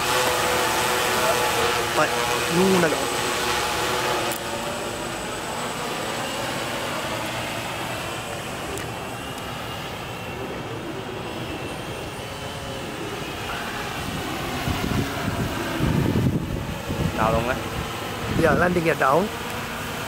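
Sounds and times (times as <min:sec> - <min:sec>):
drone propellers whirring: 0:00.0 - 0:20.0.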